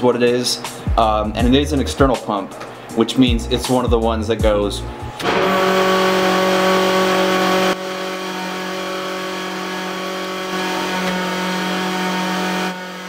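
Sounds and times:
electric fuel pump whining: 4.8 - 13.0.

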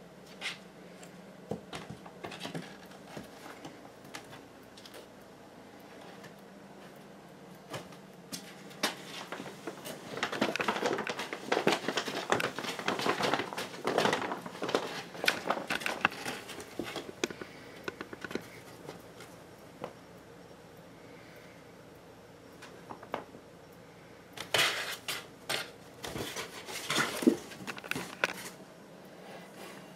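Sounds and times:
paper bag crinkling and rustling: 8.8 - 18.9, 24.4 - 28.6.

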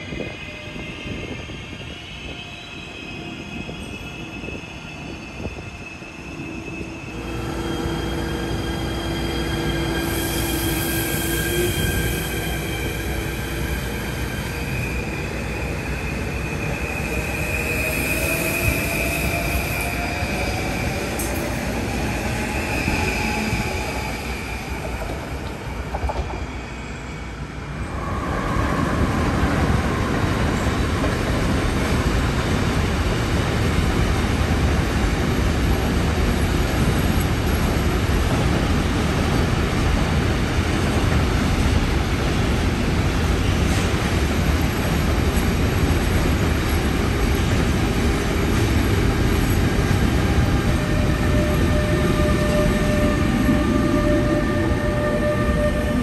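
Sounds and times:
train wheel squeal: 0.0 - 31.4, 48.6 - 56.0
freight train wheels on rails: 0.0 - 56.0
electric train traction whine: 5.4 - 26.3.

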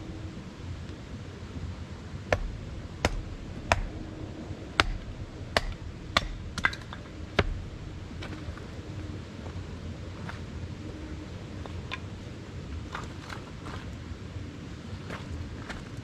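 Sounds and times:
low rumble: 0.0 - 16.0
hatchet chopping wood: 2.3 - 4.0, 4.8 - 7.6.

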